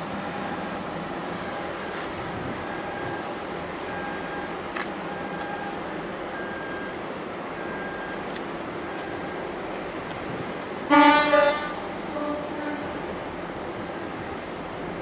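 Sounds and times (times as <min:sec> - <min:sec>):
harbour machinery drone: 0:00.0 - 0:15.0.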